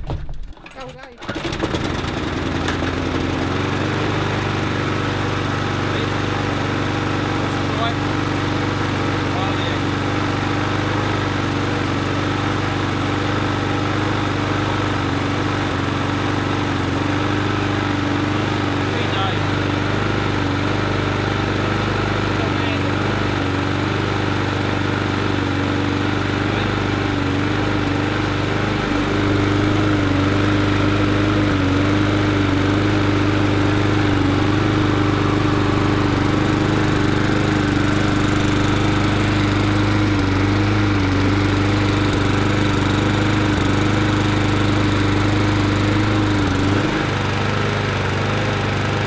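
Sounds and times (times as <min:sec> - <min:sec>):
lawnmower engine running: 0:00.4 - 0:49.0.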